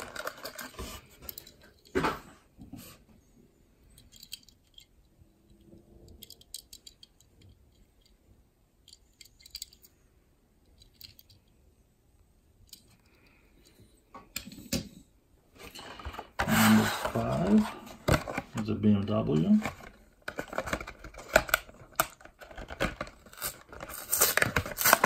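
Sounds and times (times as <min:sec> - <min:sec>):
toy car clicks and rattles: 0:04.0 - 0:04.9, 0:06.1 - 0:08.1, 0:08.8 - 0:09.9, 0:10.7 - 0:11.5.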